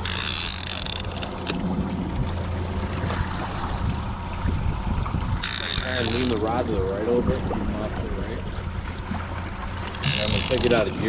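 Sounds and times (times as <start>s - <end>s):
outboard motor humming: 0.0s - 11.0s
water rushing: 0.0s - 11.0s
high-pitched whirring buzz: 10.0s - 10.8s.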